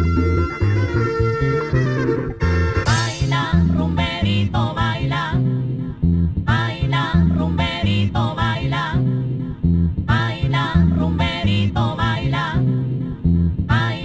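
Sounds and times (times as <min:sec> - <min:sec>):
high pitch-bending lead: 0:00.0 - 0:05.1
latin dance music: 0:00.0 - 0:05.5
heavy rhythmic bass line: 0:00.0 - 0:14.0.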